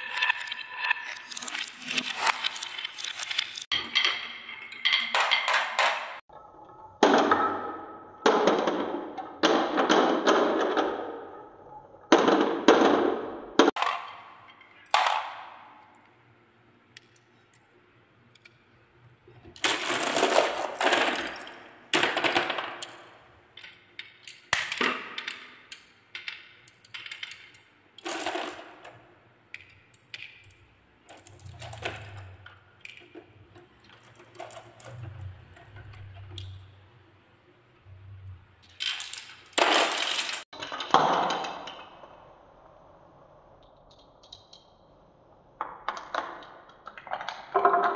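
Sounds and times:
balls rattling down wooden tracks: 0.0 - 6.2, 13.7 - 41.2, 45.6 - 47.9
balls clicking together: 13.7 - 36.8.

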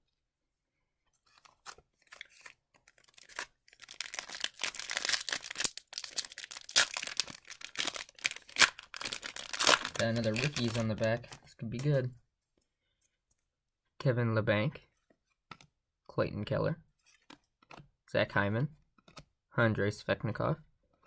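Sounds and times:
card pack wrapper crinkling: 1.2 - 11.4.

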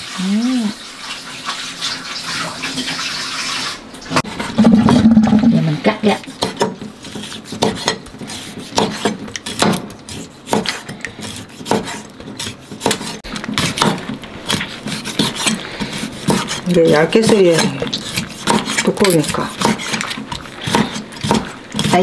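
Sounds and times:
faint knife scraping: 6.1 - 13.8, 14.4 - 22.0.

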